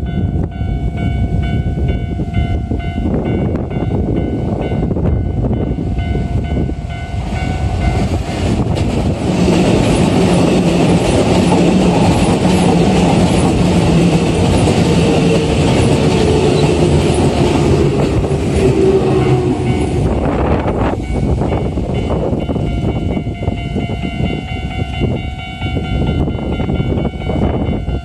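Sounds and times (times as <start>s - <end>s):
level crossing warning bell: 0.0s - 8.2s, 9.9s - 28.0s
train motor hum: 7.2s - 22.7s
train wheels clattering over rail joints: 7.8s - 18.9s.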